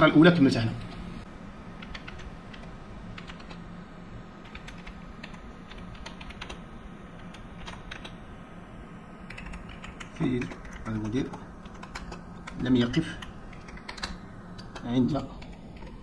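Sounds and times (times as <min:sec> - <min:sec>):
low background hum: 0:00.0 - 0:16.0
keyboard typing clicks: 0:01.8 - 0:03.6, 0:04.4 - 0:06.6, 0:07.2 - 0:08.2, 0:09.3 - 0:16.0.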